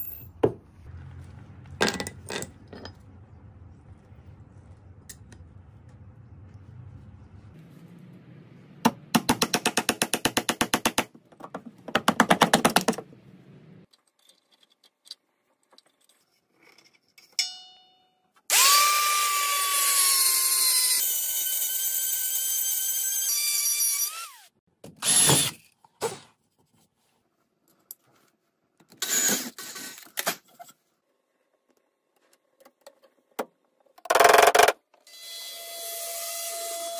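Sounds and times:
power drill driving screw: 18.5 - 24.4, 25.0 - 25.6.

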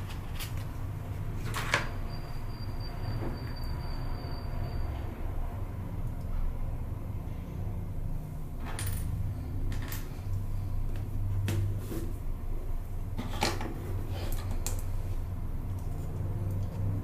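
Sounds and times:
steady low hum: 5.1 - 17.0.

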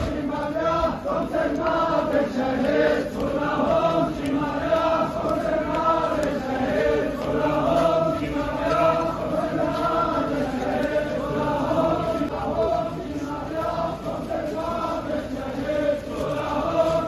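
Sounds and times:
crowd of men chanting: 0.0 - 17.0.

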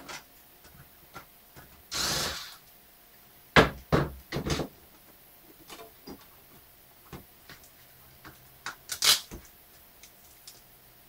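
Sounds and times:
cordless electric screwdriver running: 1.9 - 2.6
tool knocking on workbench: 3.6 - 4.7.

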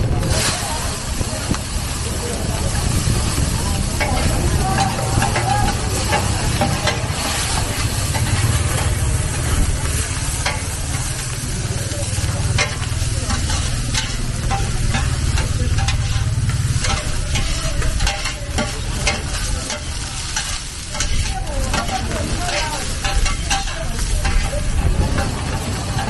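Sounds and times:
food sizzling in a wok: 0.0 - 26.0
steel spatulas scraping: 12.5 - 24.6.

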